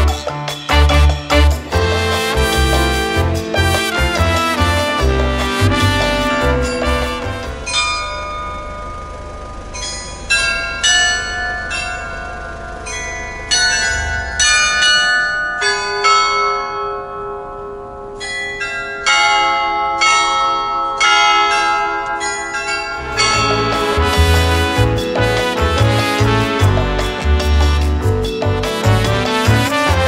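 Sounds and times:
carillon bells playing slow tune: 1.8 - 26.1.

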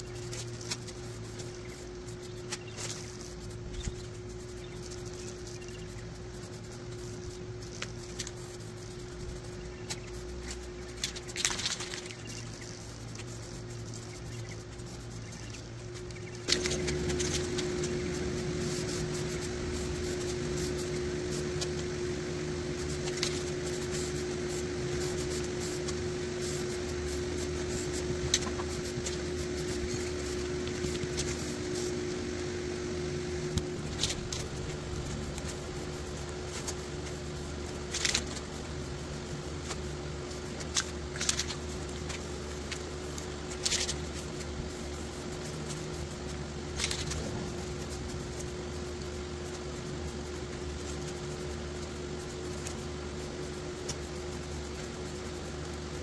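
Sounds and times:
aerosol spray paint hissing: 0.0 - 32.8
machine hum: 0.0 - 56.0.

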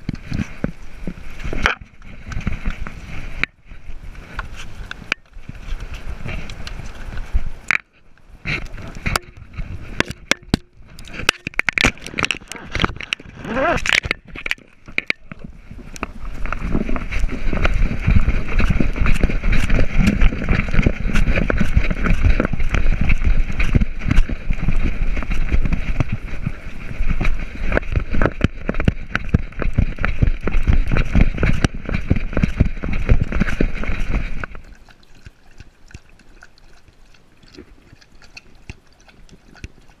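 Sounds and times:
camera knocking and rubbing: 7.7 - 34.6.

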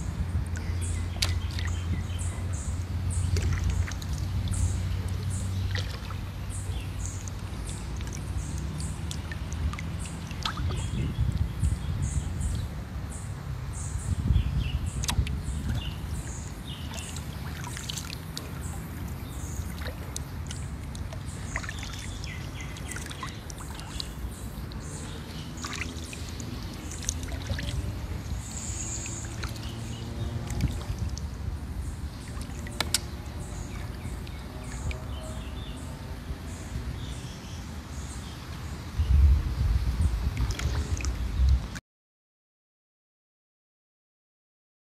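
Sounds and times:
steady low rumble: 0.0 - 37.0, 38.9 - 41.7
birds chirping: 0.0 - 41.8
water dripping off paddle: 0.4 - 11.6, 14.9 - 35.5.

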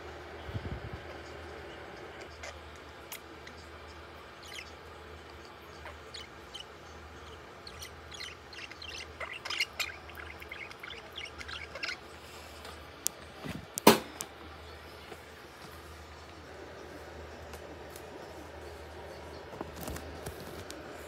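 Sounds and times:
budgerigar chirping: 4.3 - 12.1.

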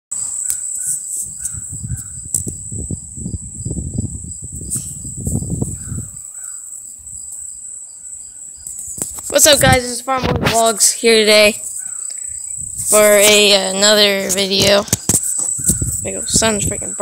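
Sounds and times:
insects chirping: 0.1 - 17.0
low rumbling microphone noise: 1.3 - 6.3, 8.8 - 17.0.

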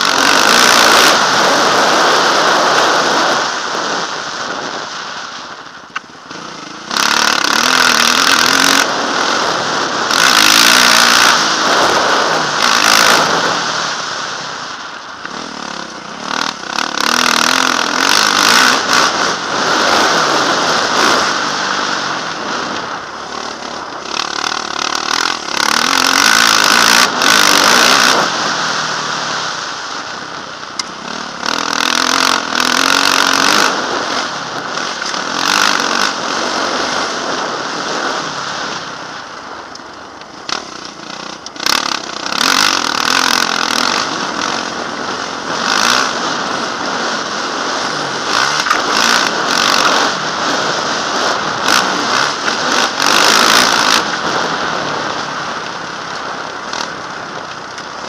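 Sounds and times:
dirt bike engine revving: 0.0 - 58.0
wind rushing over microphone: 0.0 - 58.0.

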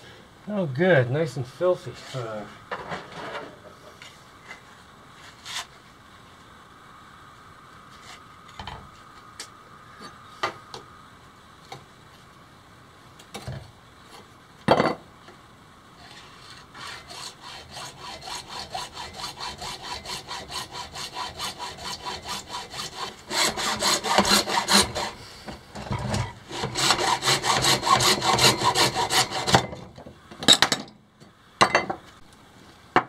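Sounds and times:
hacksaw cutting metal pipe: 16.8 - 29.8.

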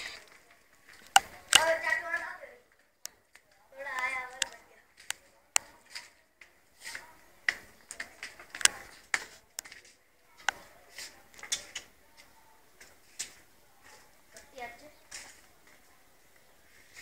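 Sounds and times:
hooves tapping on concrete: 2.7 - 17.0.

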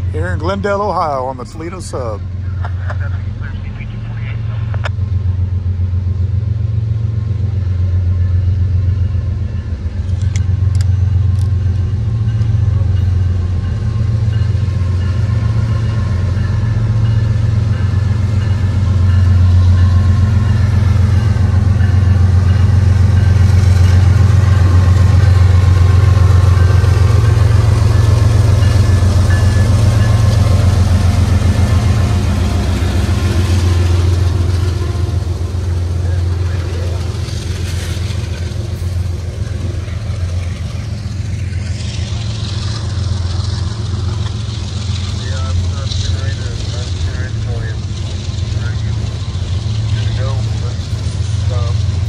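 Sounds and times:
diesel locomotive engine drone: 0.0 - 52.0.

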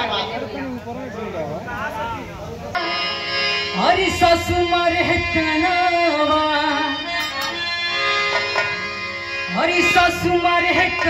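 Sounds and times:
sustained instrumental accompaniment: 2.7 - 11.0
woman singing into microphone: 3.7 - 7.9, 9.5 - 11.0.

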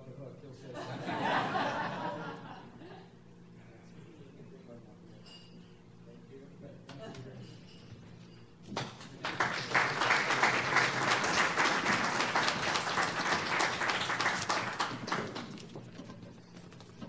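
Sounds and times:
audience applauding: 9.1 - 15.9.

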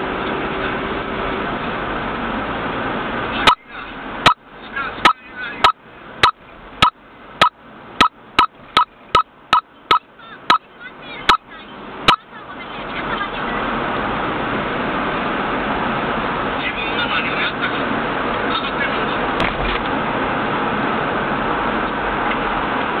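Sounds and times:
steady road noise: 0.0 - 23.0.

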